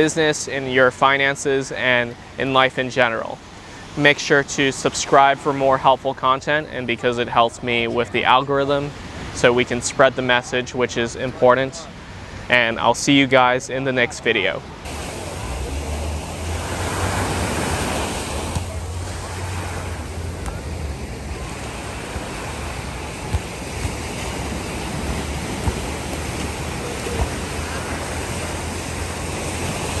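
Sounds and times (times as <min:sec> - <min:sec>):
small waves breaking on beach: 0:14.6 - 0:30.0.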